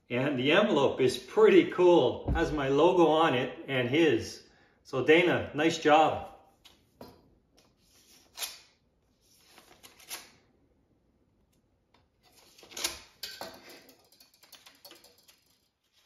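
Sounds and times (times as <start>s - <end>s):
knife slitting paper envelope: 7.9s - 10.4s
paper rustling and crinkling: 9.2s - 10.3s.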